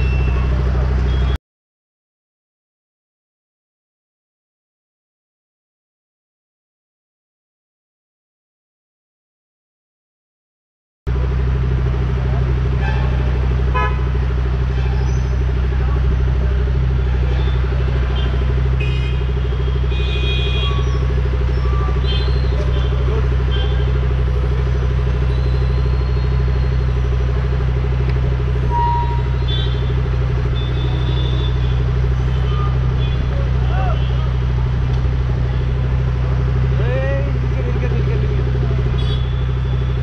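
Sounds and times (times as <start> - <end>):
engines idling in traffic: 0.0 - 1.4, 11.1 - 40.0
short high-pitched horn toots: 28.7 - 29.9.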